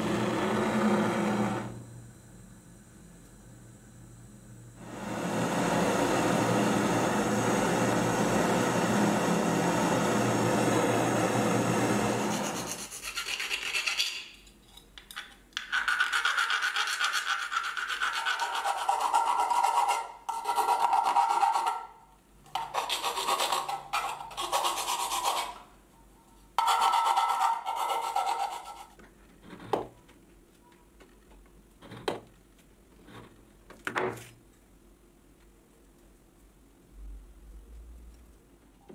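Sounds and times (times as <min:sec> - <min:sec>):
hand file rasping on brass: 0:15.8 - 0:21.8, 0:26.6 - 0:28.9.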